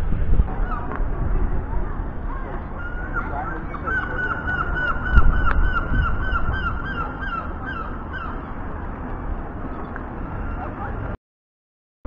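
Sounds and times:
wind rumble on microphone: 0.0s - 11.2s
gull yelping calls: 0.6s - 1.0s, 2.8s - 8.5s.

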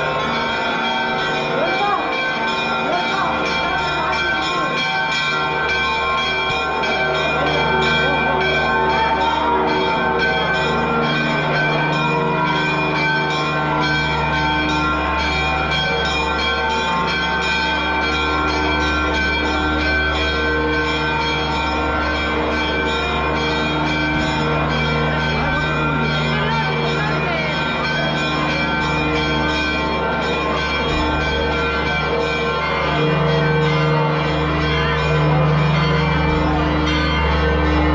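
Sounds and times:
church bells ringing: 0.0s - 37.9s.

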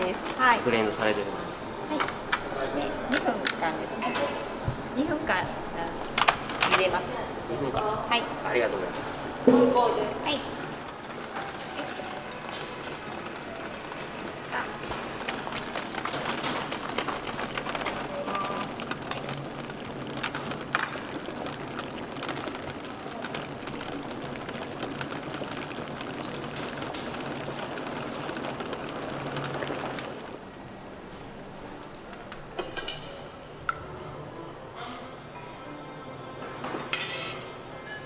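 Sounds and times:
water boiling hard: 0.0s - 34.4s.

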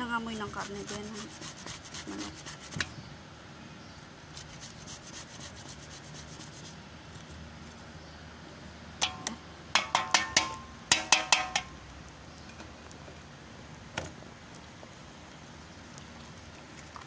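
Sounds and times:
grater tapping steel bowl: 9.0s - 11.7s.

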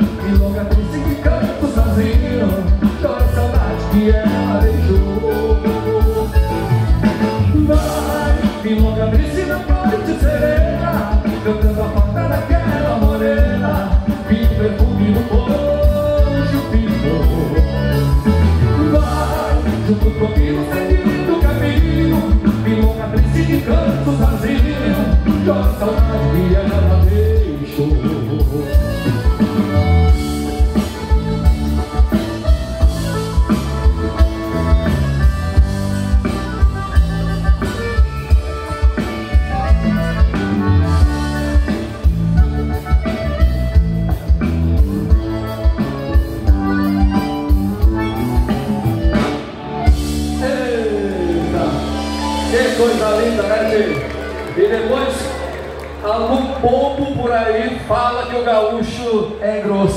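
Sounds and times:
person singing: 0.0s - 30.0s
steady drum beat: 0.0s - 50.6s
band playing regional music: 0.0s - 59.9s.

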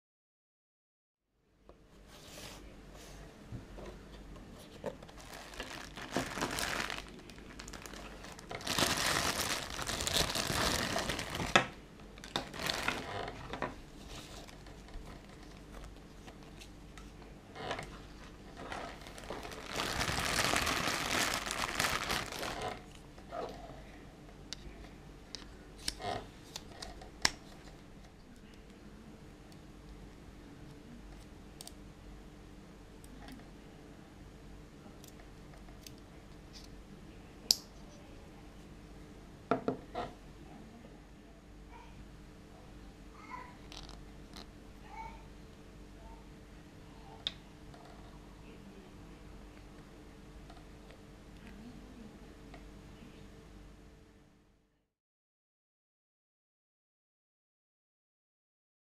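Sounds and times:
plastic packaging crinkling: 5.0s - 16.6s, 18.2s - 22.9s.

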